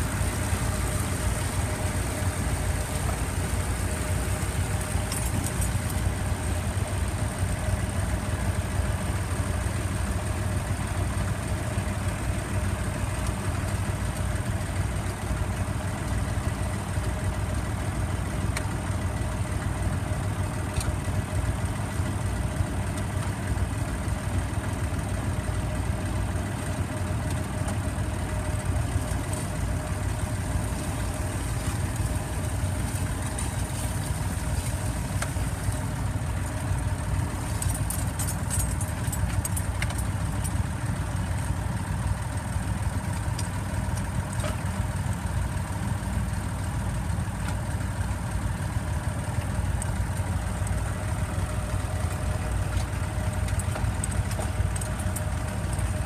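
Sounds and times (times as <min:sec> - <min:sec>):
tractor engine running: 0:00.0 - 0:56.0.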